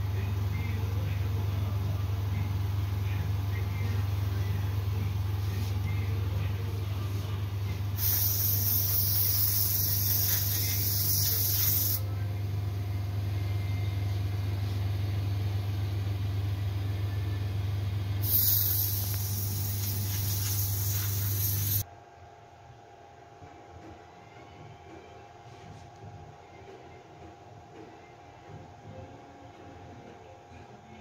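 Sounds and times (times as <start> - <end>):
machine humming low: 0.0 - 27.1
spray gun hissing: 8.0 - 12.0, 18.2 - 21.8.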